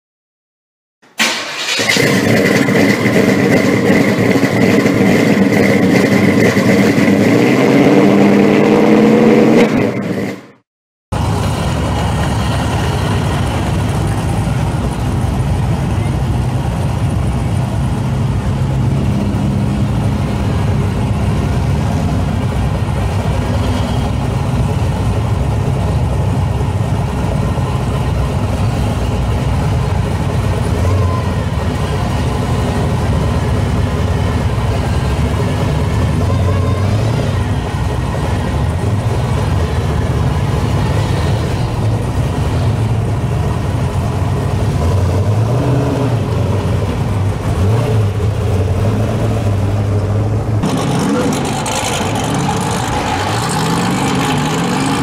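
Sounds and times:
car engine idling: 11.1s - 45.2s, 46.2s - 55.0s.

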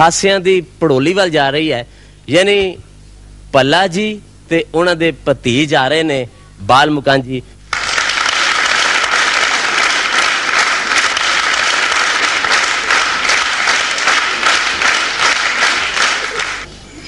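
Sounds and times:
audience applauding: 7.7s - 16.7s.

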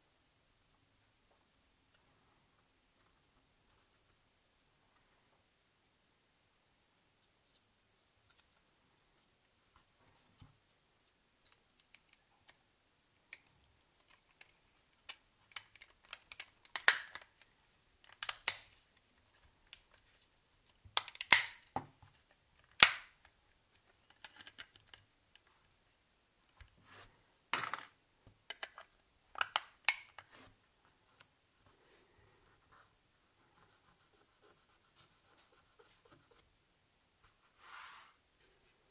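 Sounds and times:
plastic parts clicking and snapping: 13.3s - 20.0s, 20.9s - 21.8s, 22.6s - 25.5s, 27.6s - 30.3s.

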